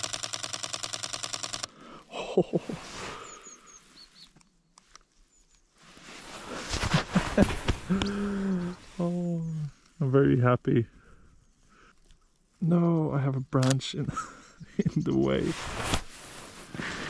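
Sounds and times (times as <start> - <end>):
camera shutter burst: 0.0 - 1.7
rustling: 2.8 - 8.1, 15.2 - 17.0
faint high bird chirps: 3.0 - 5.8, 8.4 - 10.4.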